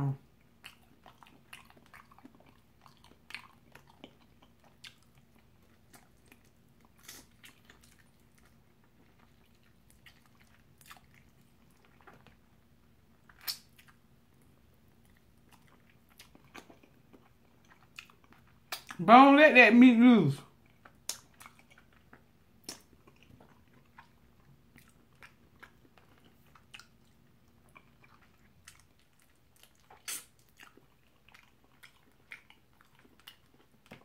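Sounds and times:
faint chewing and biting: 0:00.3 - 0:19.0, 0:20.5 - 0:34.0
wet mouth clicks: 0:13.3 - 0:14.0, 0:18.7 - 0:19.0, 0:22.6 - 0:23.2, 0:29.6 - 0:30.5.

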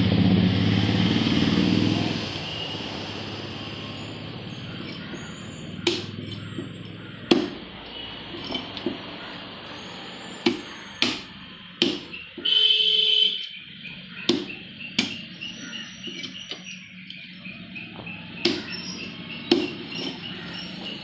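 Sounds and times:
knife chopping on wooden block: 0:04.8 - 0:07.6, 0:10.4 - 0:12.5, 0:14.2 - 0:15.3, 0:18.4 - 0:18.8, 0:19.5 - 0:20.3
loud steady tone: 0:12.4 - 0:13.6.

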